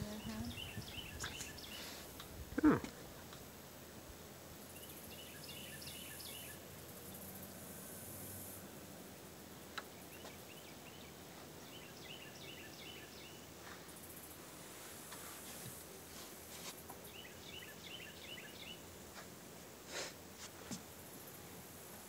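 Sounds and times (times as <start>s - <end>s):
small bird chirping: 0.0s - 2.0s, 4.7s - 7.4s, 9.9s - 13.4s, 17.1s - 18.8s
faint background hiss: 0.0s - 22.0s.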